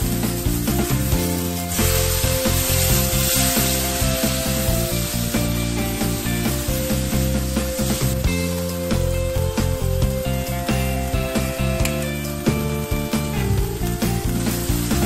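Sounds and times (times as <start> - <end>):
spatula stirring in wok: 0.0 - 9.1
background music: 0.0 - 15.0
chicken sizzling in hot oil: 0.0 - 15.0.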